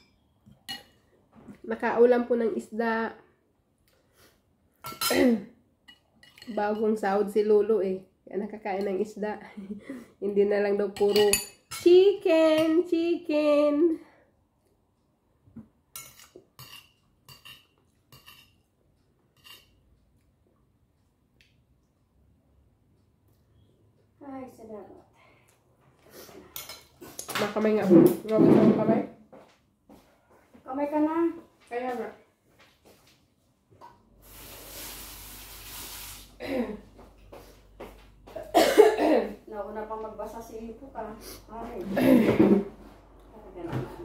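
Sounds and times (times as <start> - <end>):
dishes and cutlery clinking: 0.0 - 1.1, 4.8 - 7.0, 10.9 - 12.8, 15.9 - 18.7, 19.3 - 19.9.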